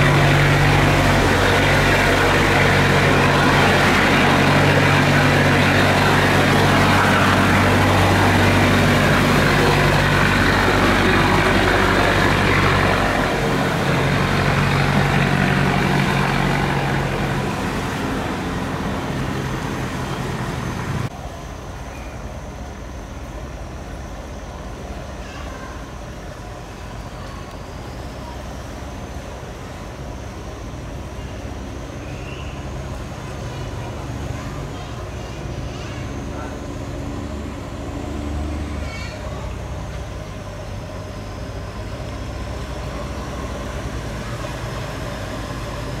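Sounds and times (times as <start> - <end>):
rushing water: 0.0 - 21.1
boat engine humming: 0.0 - 46.0.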